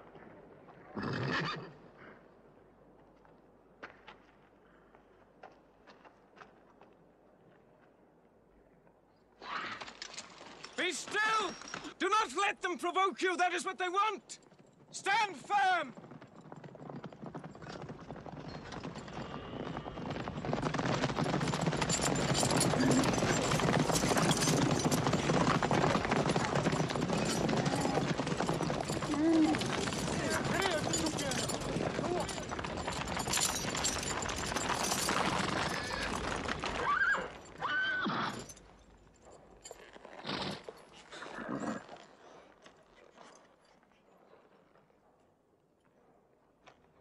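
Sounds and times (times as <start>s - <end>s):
horses galloping: 14.0s - 43.5s
riders pulling up: 16.1s - 37.5s.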